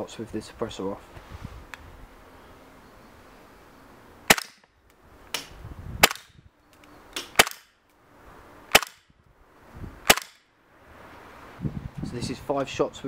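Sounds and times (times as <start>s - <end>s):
airsoft pistol shots: 4.3s - 4.7s, 5.4s - 6.4s, 7.2s - 7.8s, 8.7s - 9.1s, 10.0s - 10.5s.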